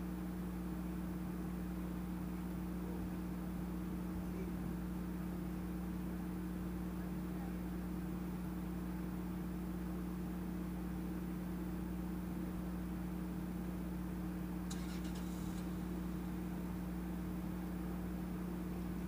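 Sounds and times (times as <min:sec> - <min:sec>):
low mechanical hum: 0:00.0 - 0:19.0
faint hiss: 0:14.7 - 0:17.6.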